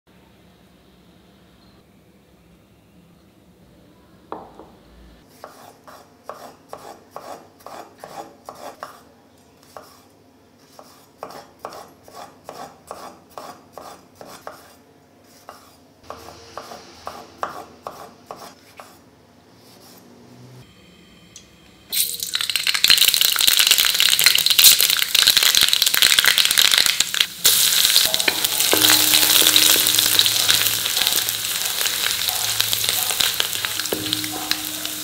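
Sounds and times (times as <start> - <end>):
knife chopping on wooden board: 10.7 - 19.0.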